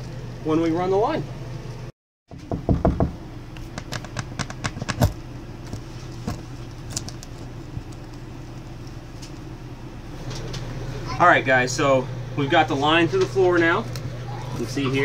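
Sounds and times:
steady low hum: 0.0 - 15.0
pipe knocking and rattling: 2.3 - 5.0.

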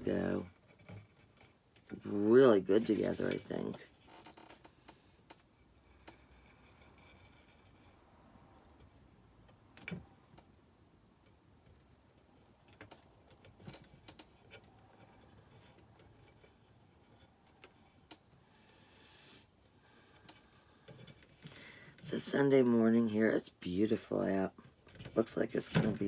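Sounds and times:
soft brushing rustle: 2.0 - 3.9.

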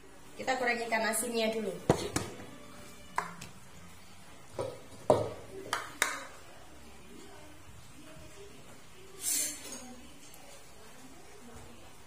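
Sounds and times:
kitchenware clinking and knocking: 4.5 - 5.6.

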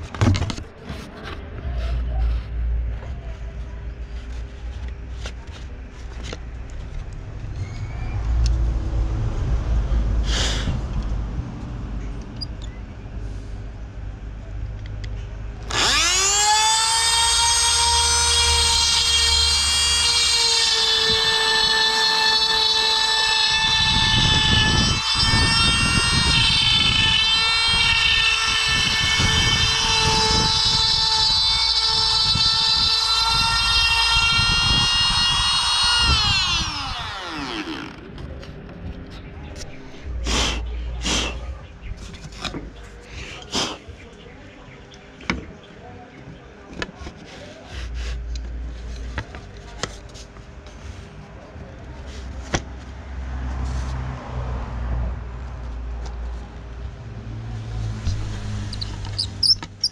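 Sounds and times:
low rumbling: 1.4 - 46.7
power tool motor whining: 15.6 - 38.1.

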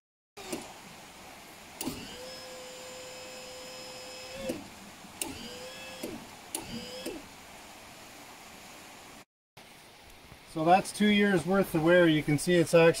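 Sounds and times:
electric motor humming: 1.8 - 7.3
motor switch click: 4.3 - 7.2.

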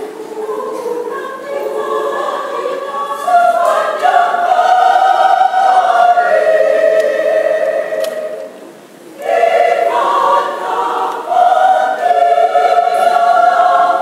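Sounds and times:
women's choir singing: 0.0 - 14.0.

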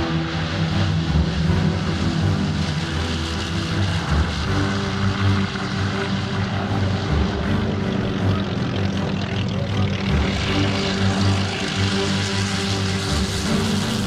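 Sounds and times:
aircraft propeller engines droning: 0.0 - 14.0.

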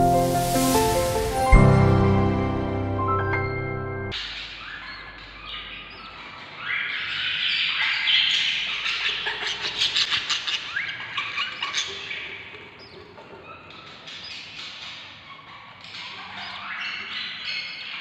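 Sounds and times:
budgerigar chicks begging calls: 4.3 - 18.0.

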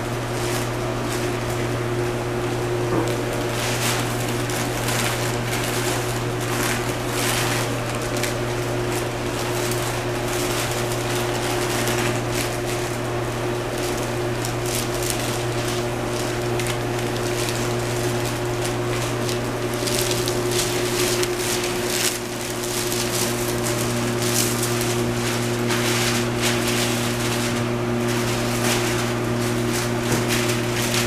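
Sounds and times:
ventilation fan humming: 0.0 - 31.0
cloth swishing: 19.8 - 31.0.

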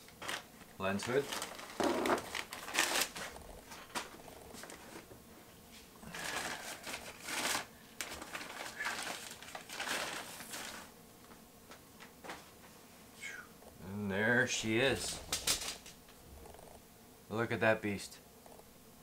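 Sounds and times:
plastic wrapping crinkling: 0.0 - 5.1, 6.1 - 10.9, 15.1 - 16.0.

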